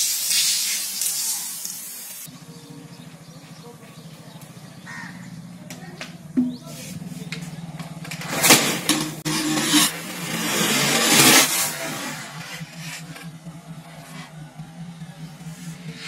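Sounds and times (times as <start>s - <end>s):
water hissing spray: 0.0s - 2.3s.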